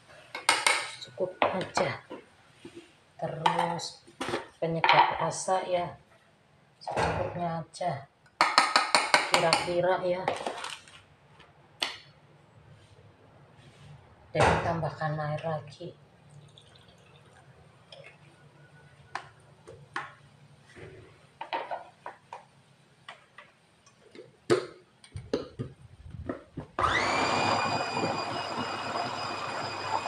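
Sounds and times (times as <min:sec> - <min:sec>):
food chopper motor whining: 0:26.8 - 0:30.0.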